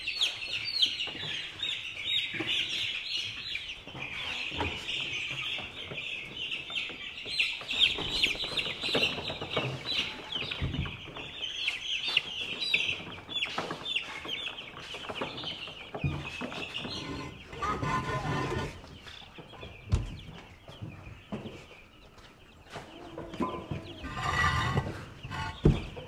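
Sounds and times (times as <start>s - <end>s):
chicks cheeping: 0.0s - 26.0s.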